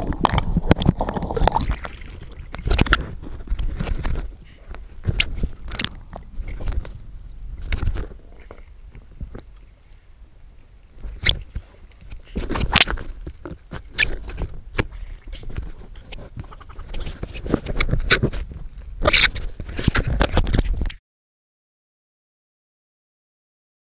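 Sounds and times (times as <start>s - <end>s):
water sloshing and splashing: 0.0s - 21.0s.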